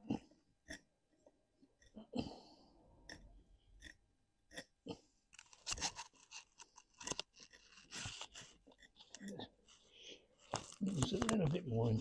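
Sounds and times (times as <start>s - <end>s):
tool scraping wood: 5.4s - 12.0s.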